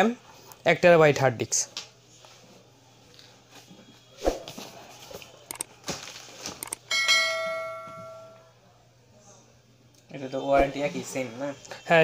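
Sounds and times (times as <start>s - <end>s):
bell sound effect ringing: 6.9s - 8.5s.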